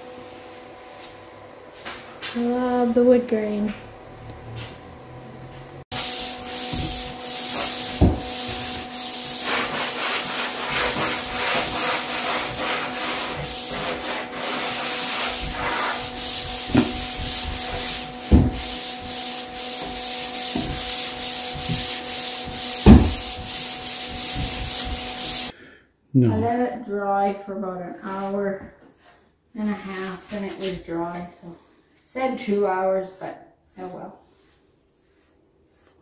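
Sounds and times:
sanding sponge scrubbing wood: 0:05.9 - 0:25.5, 0:32.6 - 0:36.0.

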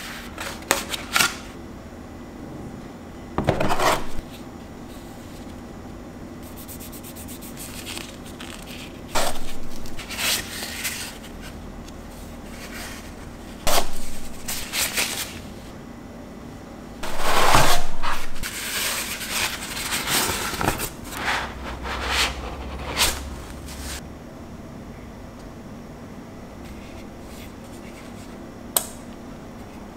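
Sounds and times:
paper and cardboard rustling: 0:06.7 - 0:15.5, 0:17.0 - 0:24.0.

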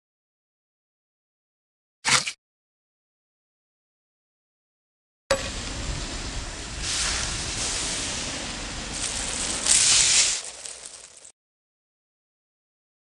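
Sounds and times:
food sizzling on a grill: 0:06.8 - 0:11.3.

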